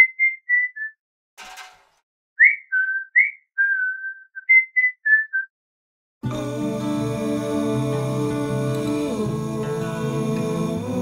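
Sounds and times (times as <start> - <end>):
person whistling a tune: 0.0 - 1.0, 2.4 - 5.5.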